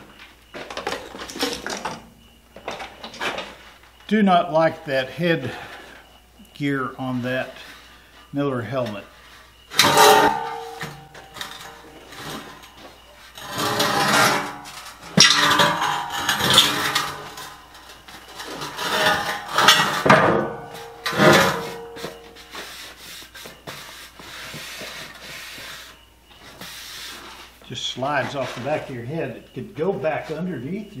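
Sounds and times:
steel scraping on steel: 9.7 - 12.6, 13.2 - 26.0
steel frame clanking: 9.7 - 12.7, 13.4 - 22.5
steel tube ringing: 9.8 - 11.9.

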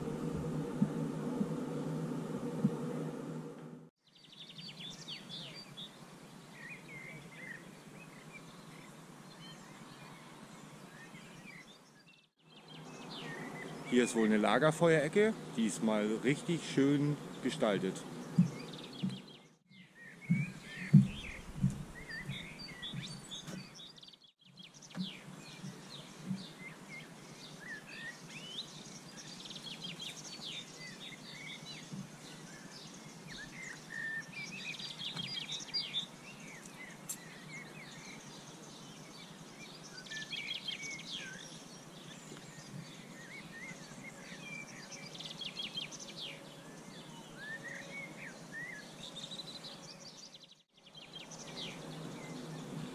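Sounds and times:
dull low thumps: 0.0 - 3.9, 18.3 - 19.3, 20.3 - 23.7
small birds chirping: 4.0 - 52.9.

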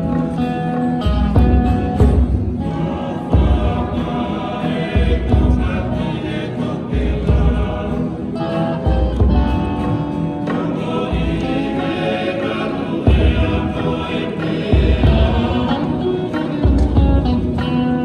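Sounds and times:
group singing in chorus: 0.0 - 18.0
low beat: 12.9 - 18.0.

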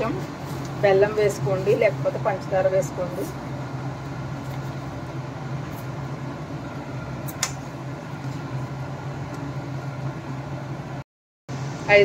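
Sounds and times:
low mechanical hum: 0.0 - 12.0
sharp click: 7.3 - 7.6.

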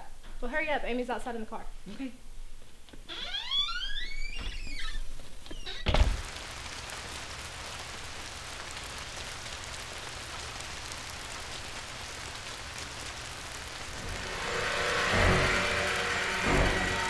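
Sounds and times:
rain-like hiss: 3.8 - 17.0
low hum: 11.3 - 17.0.

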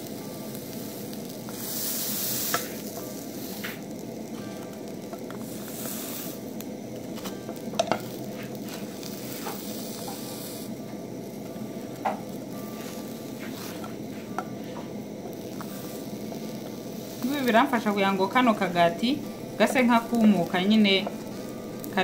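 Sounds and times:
buns sizzling in frying pan: 0.0 - 22.0.

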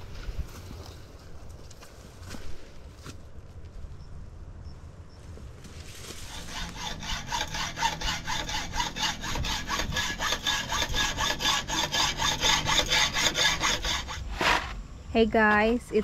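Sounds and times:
hacksaw cutting steel rod: 6.3 - 14.8.

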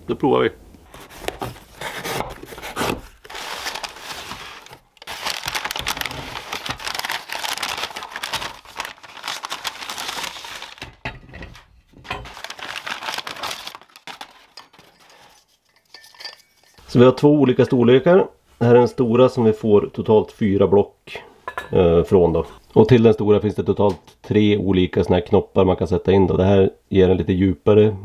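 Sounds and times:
packing paper crinkling: 0.9 - 11.0, 12.1 - 15.6.

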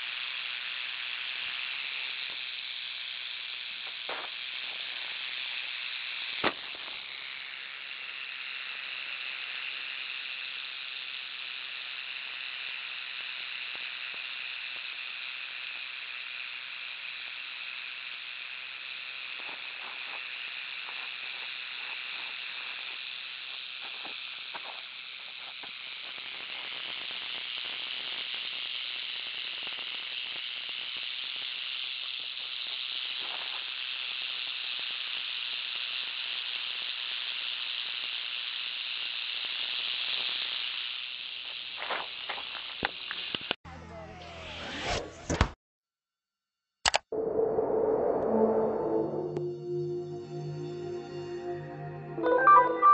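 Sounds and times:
rattlesnake rattling: 0.0 - 43.5
sharp click: 46.9 - 47.1.

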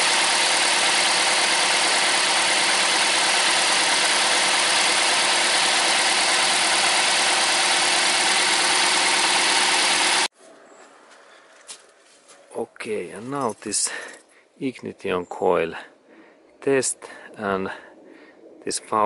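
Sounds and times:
petrol engine idling: 0.0 - 10.3.

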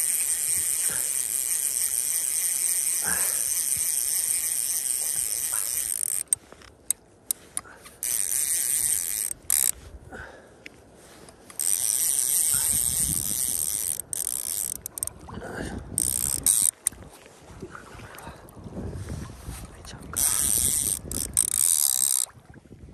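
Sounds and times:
fishing reel ratcheting: 0.0 - 9.8, 11.5 - 15.2, 15.9 - 17.0, 20.2 - 22.3.

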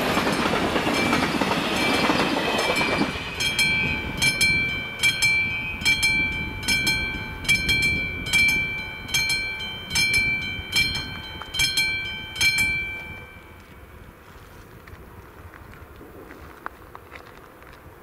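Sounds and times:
level crossing warning bell: 0.0 - 13.9
train rumble: 0.0 - 18.0.

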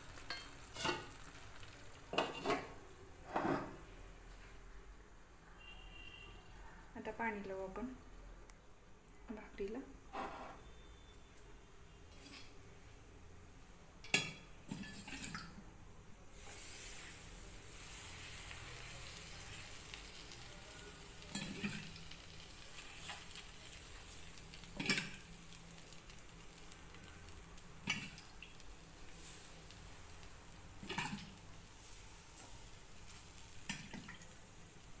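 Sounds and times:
water sizzling on hot griddle: 0.0 - 3.6, 13.9 - 35.0.

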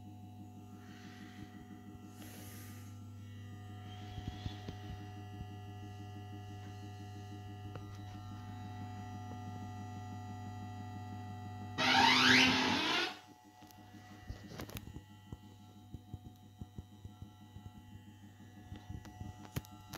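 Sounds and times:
fruit machine humming: 0.0 - 15.7
electronic sound effect with rising sweeps: 11.8 - 13.2.

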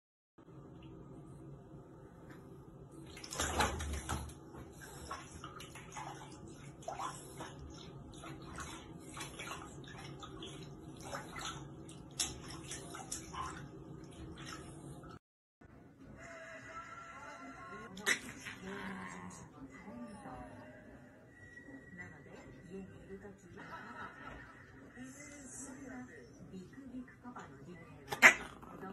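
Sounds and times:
water splashing in plastic basin: 3.0 - 14.7.

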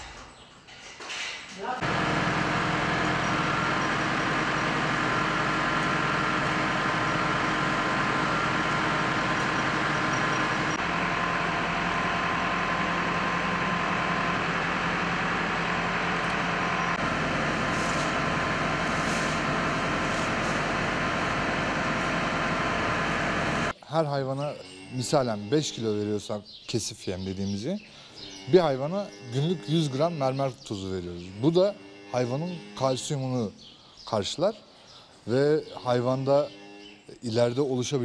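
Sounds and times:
machinery motor drone: 1.8 - 23.7.

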